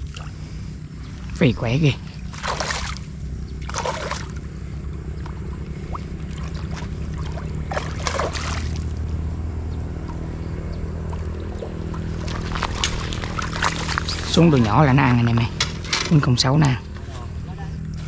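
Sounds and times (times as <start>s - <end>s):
low motor hum: 0.0s - 18.0s
fish splashing at water surface: 2.2s - 4.4s, 5.2s - 9.0s, 11.1s - 14.4s.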